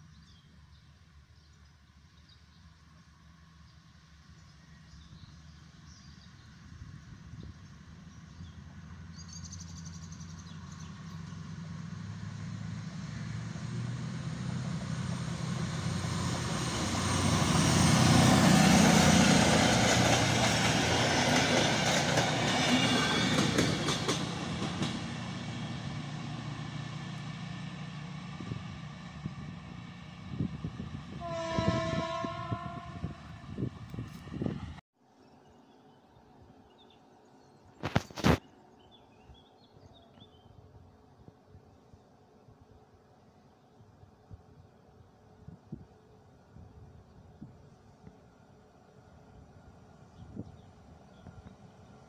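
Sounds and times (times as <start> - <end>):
train wheels rumbling on rail: 10.5 - 34.8
train horn: 31.1 - 33.5.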